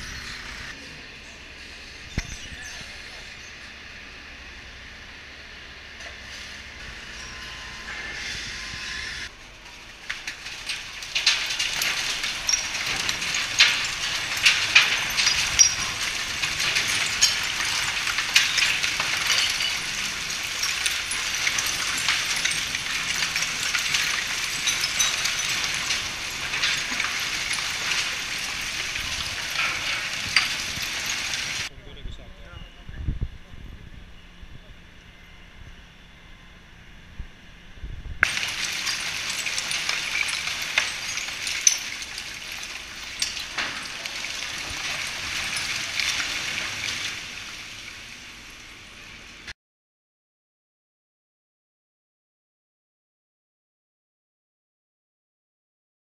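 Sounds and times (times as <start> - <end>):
waste pouring from chute: 9.5 - 31.7, 38.2 - 49.5.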